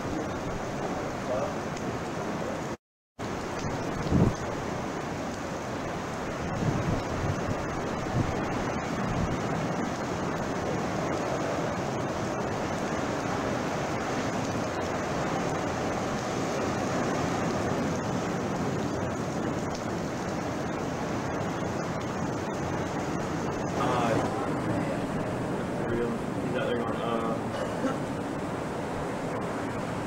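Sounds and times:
heavy surf crashing: 0.0s - 30.0s
wind blowing: 0.0s - 30.0s
wind buffeting microphone: 0.0s - 30.0s.

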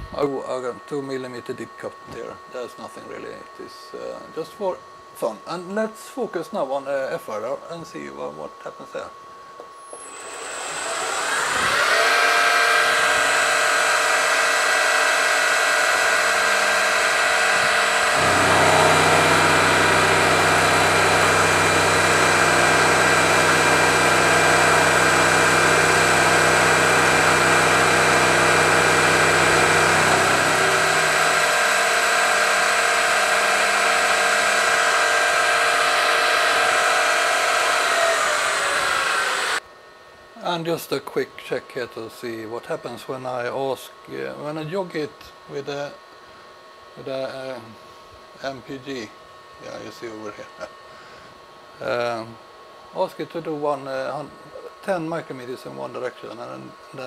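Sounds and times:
milling machine spindle whine: 0.0s - 39.6s
end mill cutting metal: 9.9s - 39.6s
deep hum: 15.0s - 39.6s.

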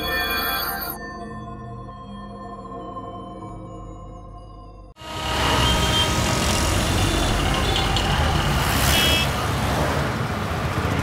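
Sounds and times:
chiming electronic jingle: 0.0s - 4.9s
short high horn beeps: 5.0s - 8.0s
city traffic: 5.0s - 11.0s.

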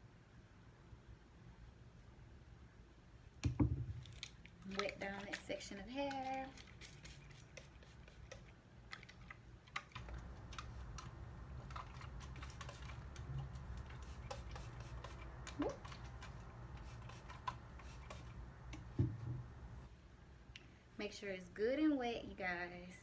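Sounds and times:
low steady hum: 0.0s - 23.0s
spray bottle clicking and spritzing: 4.8s - 9.2s, 9.8s - 18.9s.

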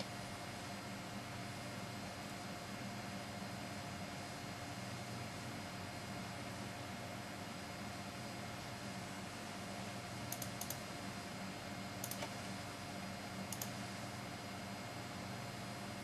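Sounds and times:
low hum and hiss: 0.0s - 16.0s
computer mouse clicking: 10.3s - 10.8s, 12.0s - 12.4s, 13.5s - 13.8s.

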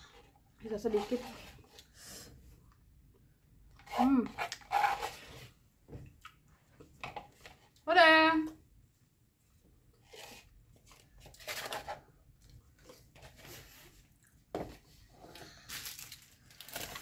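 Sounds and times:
plastic cup rustling and crinkling: 0.0s - 1.9s, 3.7s - 5.6s, 10.0s - 17.0s.

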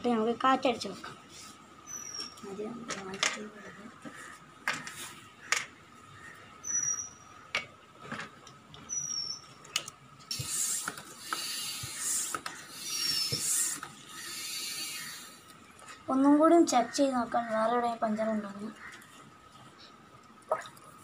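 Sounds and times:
hand pump hissing air: 10.3s - 15.4s.

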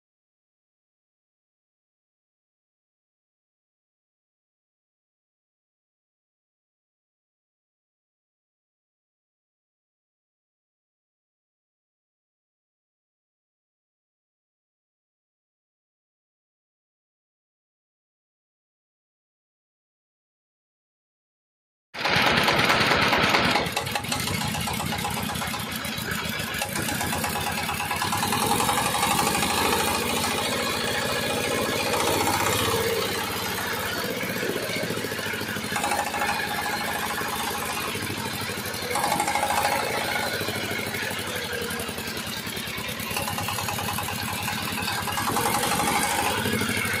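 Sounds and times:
diesel engine running: 22.0s - 47.0s.

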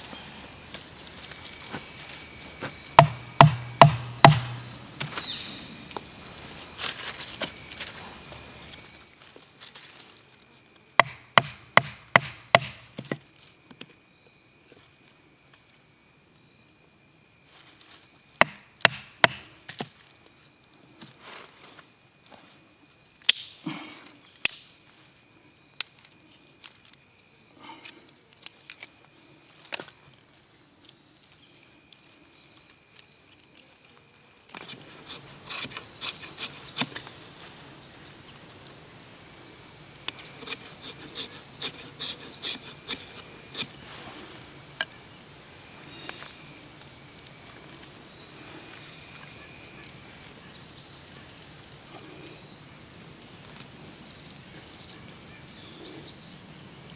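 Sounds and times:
high insect drone: 0.0s - 56.9s
knife batoning wood knocks: 3.0s - 5.2s, 11.0s - 13.2s, 18.4s - 19.5s.

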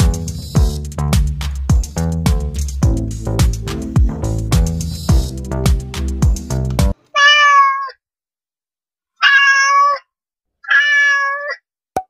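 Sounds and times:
background music: 0.0s - 7.0s
cat meowing: 7.1s - 8.0s, 9.2s - 11.6s.

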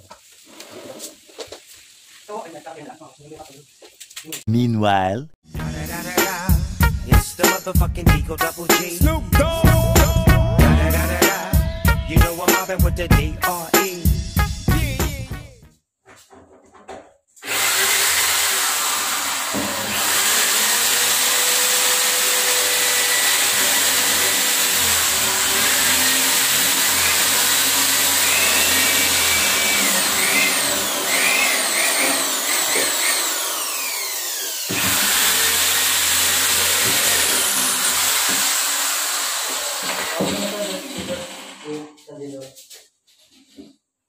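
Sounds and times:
electric drill whining: 17.4s - 41.6s.

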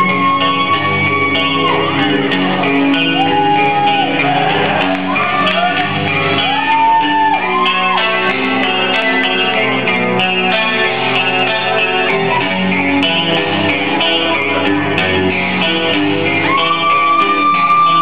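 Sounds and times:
bass guitar: 0.0s - 18.0s
distorted lead guitar bending notes: 0.0s - 18.0s
distorted rhythm guitar: 0.0s - 18.0s
drums: 0.0s - 18.0s.

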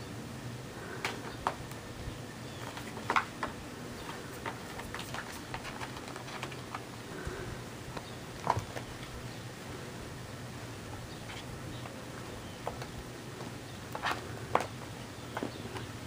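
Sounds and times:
claws scratching on plastic basket: 2.6s - 6.8s.

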